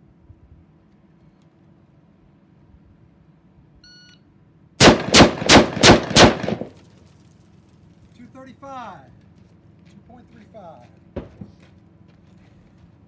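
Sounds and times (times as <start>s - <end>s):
rifle shots: 4.8s - 6.8s.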